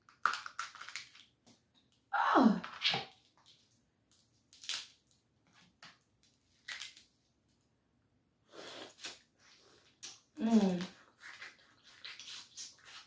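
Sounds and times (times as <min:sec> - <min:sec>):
crab shell cracking: 0:00.1 - 0:01.3, 0:04.5 - 0:05.0.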